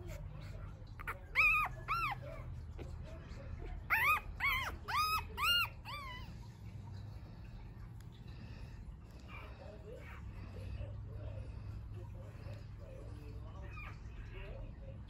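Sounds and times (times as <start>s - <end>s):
puppy crying in high squeals: 1.0s - 2.3s, 3.9s - 6.3s.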